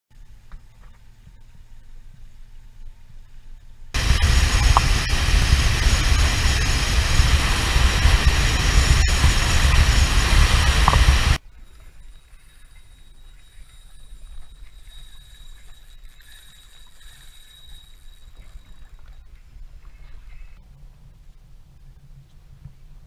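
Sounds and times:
low engine rumble: 1.2 - 11.4
wind rushing over microphone: 4.0 - 11.4.

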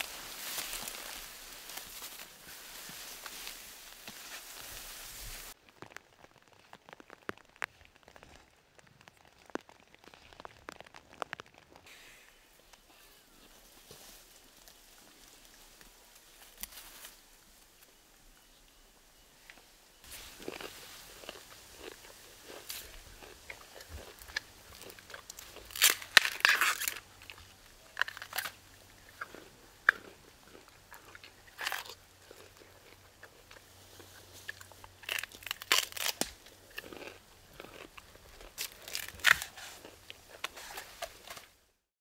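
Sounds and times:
gorillas chewing plant stems: 0.0 - 12.0, 20.0 - 41.4.

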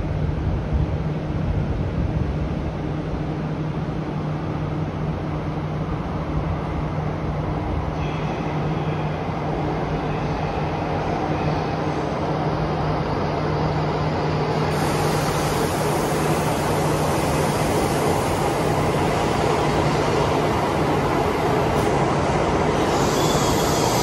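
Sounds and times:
train approaching with low hum: 0.0 - 24.0
faint high whining tones: 7.9 - 24.0.

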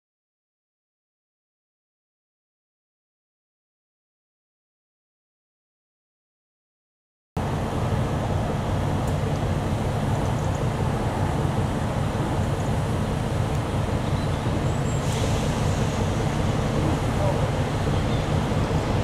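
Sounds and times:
diesel locomotive idling: 7.4 - 19.0.

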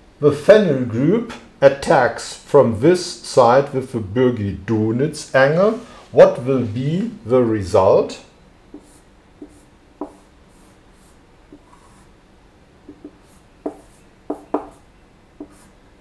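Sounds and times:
marker scratching on whiteboard: 8.7 - 12.1, 12.9 - 15.8
marker tapping and squeaking: 8.7 - 12.1, 12.8 - 15.7.

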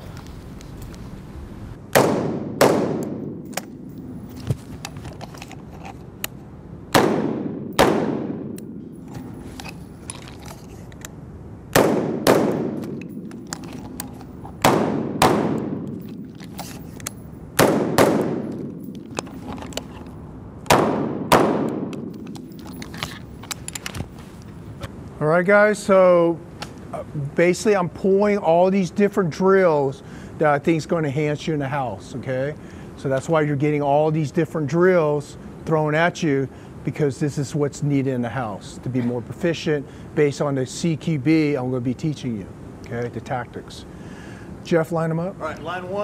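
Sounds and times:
rifle shots echoing indoors: 1.9 - 4.2, 6.9 - 9.0, 11.7 - 13.4, 14.6 - 16.2, 17.6 - 19.0, 20.7 - 22.5.

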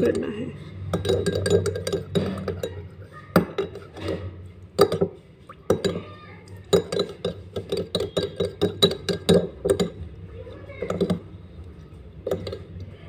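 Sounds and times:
teaspoon clinking against glass: 0.9 - 2.8, 6.6 - 10.0.

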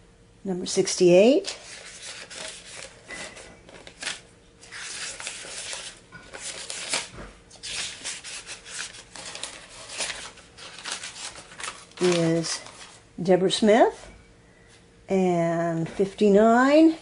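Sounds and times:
notebook pages rustling: 1.4 - 13.0.

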